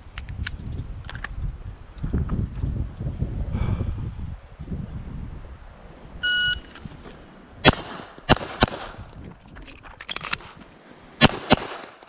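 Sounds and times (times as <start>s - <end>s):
pistol shots: 7.6s - 9.0s, 11.2s - 12.0s.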